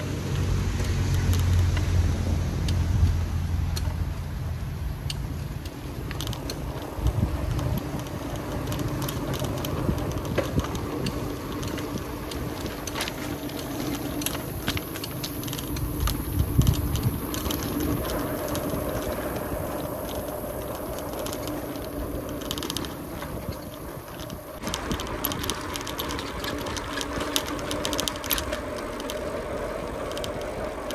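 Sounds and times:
wind rumbling on microphone: 0.0 - 30.9
light clicks and rattles: 5.0 - 30.9.

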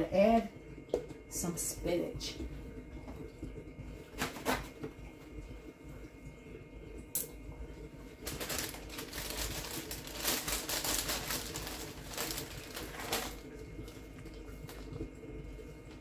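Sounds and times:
plastic packaging crinkling: 8.2 - 15.0.

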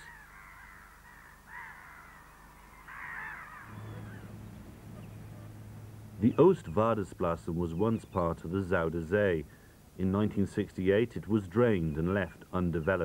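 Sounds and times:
flock of birds calling harshly: 0.0 - 9.8
low steady hum: 3.4 - 13.0.

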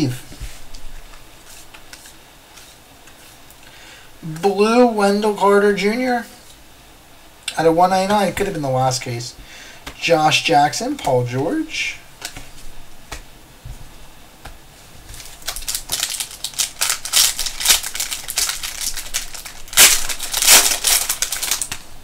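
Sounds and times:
foil wrapper crinkling: 15.1 - 22.0.

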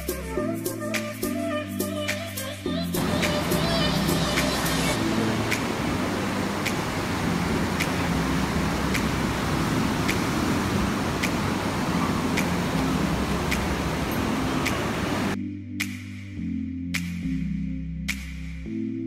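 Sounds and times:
faint background music: 0.0 - 19.0
ocean surf: 3.0 - 15.4.

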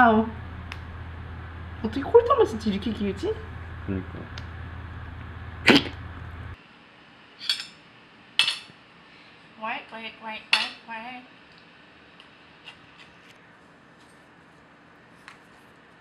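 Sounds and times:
low hum: 0.0 - 6.6.

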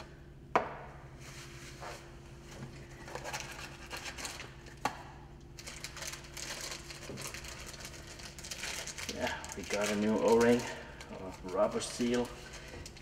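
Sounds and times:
paper towel rustling: 5.7 - 13.0.

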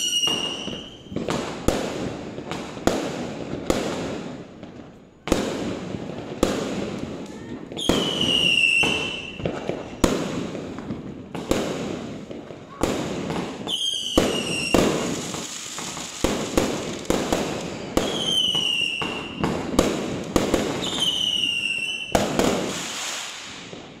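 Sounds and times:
falling firework whistle: 0.0 - 1.4, 7.7 - 10.1, 13.6 - 19.6, 20.6 - 23.9
fireworks bangs with crackle: 0.0 - 24.0.

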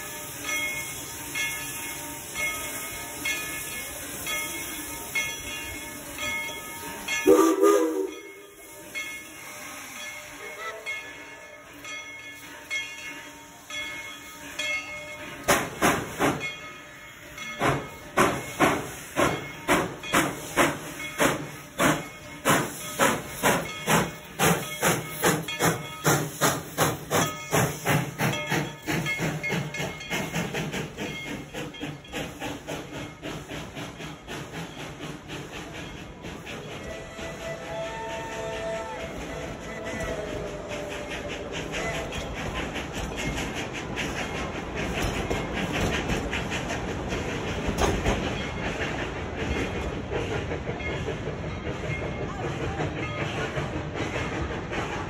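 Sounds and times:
steam locomotive hissing steam: 0.0 - 55.0
steam whistle blast: 7.2 - 8.5, 36.9 - 41.1
locomotive exhaust chuffs: 15.2 - 55.0.

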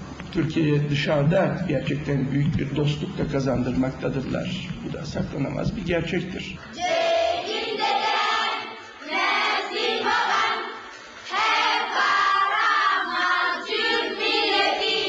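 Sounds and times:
children's choir singing: 6.7 - 15.0.

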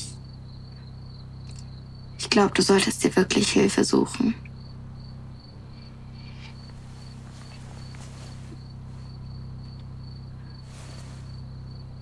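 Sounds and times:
crickets chirping: 0.0 - 12.0
low steady hum: 0.0 - 12.0
faint rustles: 5.6 - 12.0.

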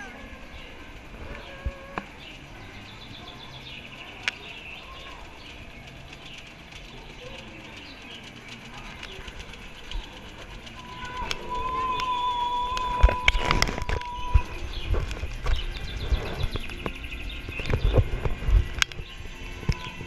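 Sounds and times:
faint chirping sound effects: 0.0 - 20.0
ride vehicle running along track: 0.0 - 20.0
sharp clicks: 4.1 - 20.0.

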